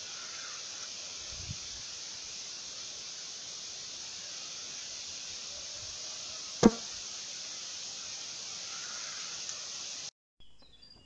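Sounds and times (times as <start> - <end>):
outdoor hiss: 0.0 - 10.1.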